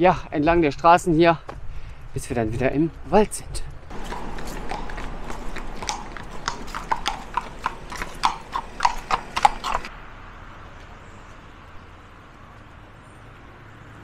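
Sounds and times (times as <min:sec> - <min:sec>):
hooves clip-clopping on asphalt: 0:03.9 - 0:09.9.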